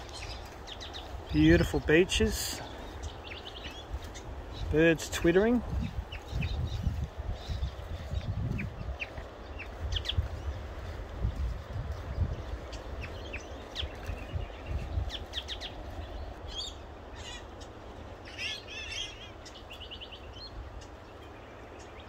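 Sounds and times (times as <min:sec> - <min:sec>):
low rumble on microphone: 0:00.0 - 0:16.9
small birds twittering: 0:00.0 - 0:22.0.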